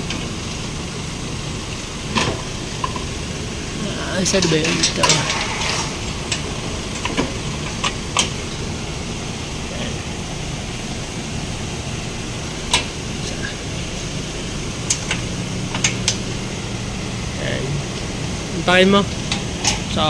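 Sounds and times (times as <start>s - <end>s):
steady background hum: 0.0s - 20.0s.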